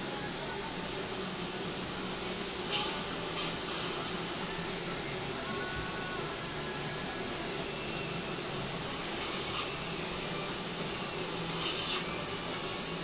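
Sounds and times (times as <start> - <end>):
dental suction hissing: 2.6 - 4.4, 9.0 - 10.0, 11.2 - 12.2.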